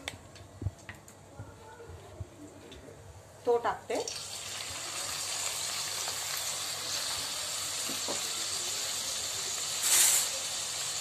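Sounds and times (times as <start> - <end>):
onion sizzling in hot oil: 3.9 - 11.0.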